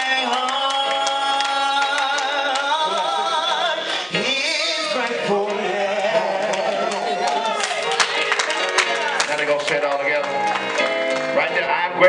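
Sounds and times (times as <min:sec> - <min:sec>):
man singing into a microphone: 0:00.0 - 0:07.6, 0:11.3 - 0:12.0
live band accompaniment: 0:00.0 - 0:12.0.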